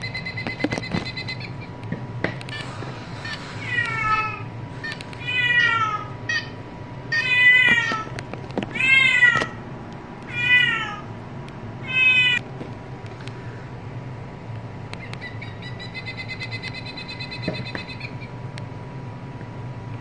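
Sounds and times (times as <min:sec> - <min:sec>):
cat meowing: 0:03.6 - 0:04.5, 0:05.2 - 0:06.2, 0:07.1 - 0:08.1, 0:08.7 - 0:09.6, 0:10.3 - 0:11.1, 0:11.8 - 0:12.4.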